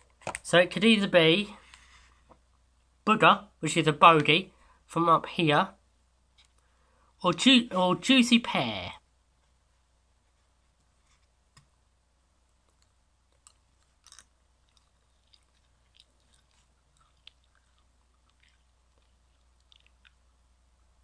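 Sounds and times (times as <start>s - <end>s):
jelly bean being chewed: 12.5s - 21.0s.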